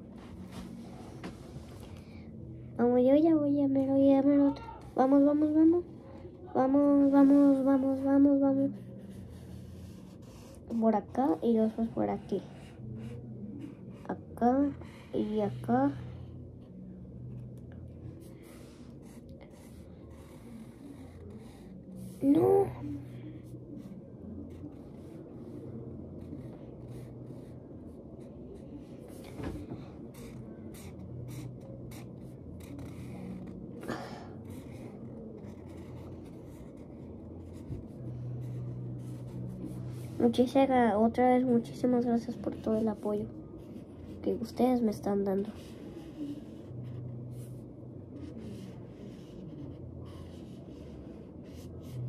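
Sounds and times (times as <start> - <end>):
low steady hum: 0.0 - 52.0
marker scratching on paper: 6.9 - 16.0, 18.4 - 22.8, 24.5 - 33.6, 34.4 - 40.5, 45.3 - 47.6, 48.2 - 52.0
marker rubbing on paper: 48.2 - 52.0.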